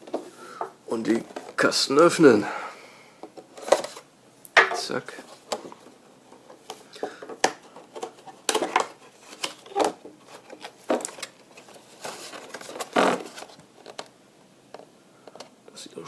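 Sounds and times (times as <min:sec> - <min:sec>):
packaging scrapes and crinkles: 0:07.9 - 0:13.6.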